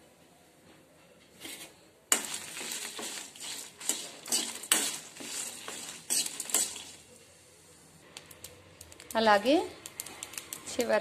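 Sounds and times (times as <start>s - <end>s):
spatula scraping metal pan: 1.4s - 7.1s
nuts rattling in pan: 2.1s - 7.0s.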